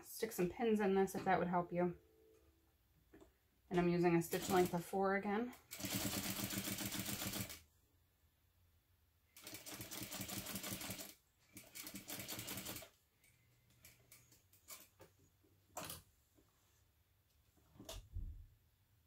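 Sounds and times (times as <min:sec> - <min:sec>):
sewing machine stitching: 0:04.3 - 0:04.8, 0:05.5 - 0:07.6, 0:09.4 - 0:13.0.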